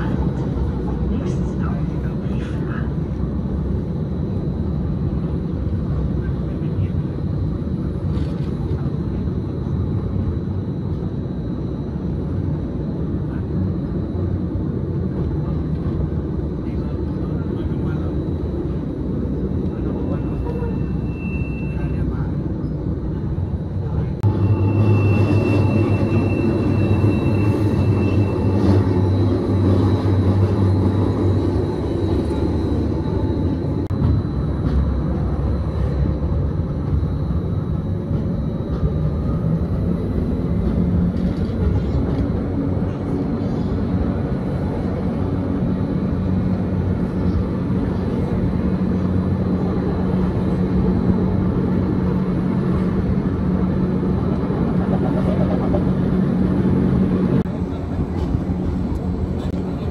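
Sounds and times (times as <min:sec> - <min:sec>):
electric train rumbling: 0:00.0 - 0:59.9
train motor hum: 0:21.7 - 0:59.9.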